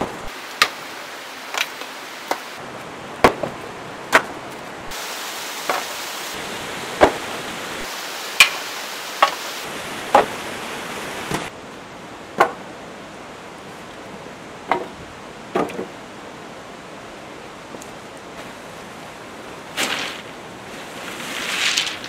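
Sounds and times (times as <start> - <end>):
firewood sticks knocking: 0.0 - 0.9, 1.5 - 2.6, 3.2 - 4.6, 5.6 - 6.0, 8.4 - 9.5, 10.1 - 10.4, 12.4 - 12.7, 14.7 - 15.9
background hiss: 0.0 - 22.0.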